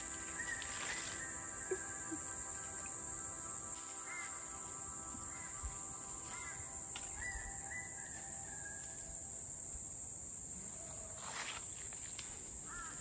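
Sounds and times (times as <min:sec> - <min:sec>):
insects droning: 0:00.0 - 0:13.0
whistled notes: 0:07.0 - 0:09.0.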